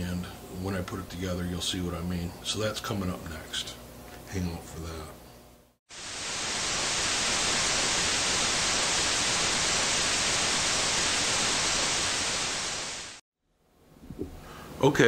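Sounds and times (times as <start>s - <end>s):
television static hiss: 5.9s - 13.2s.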